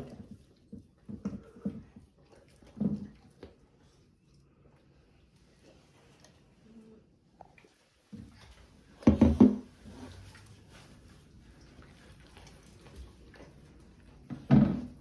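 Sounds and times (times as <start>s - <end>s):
dog licking a bowl: 0.0s - 9.0s, 9.7s - 15.0s
bowl knocking against a stool: 9.0s - 9.7s.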